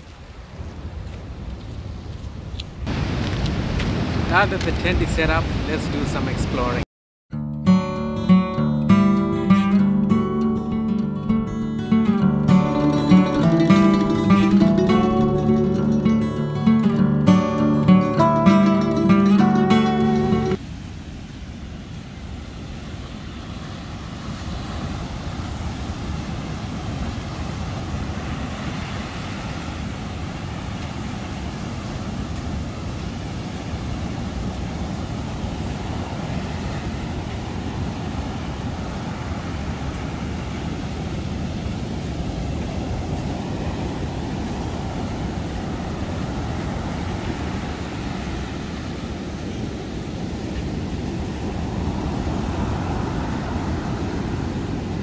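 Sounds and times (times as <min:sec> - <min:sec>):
wind rumbling on microphone: 0:00.0 - 0:06.8, 0:20.4 - 0:55.0
surf breaking on beach: 0:02.8 - 0:06.8, 0:18.2 - 0:55.0.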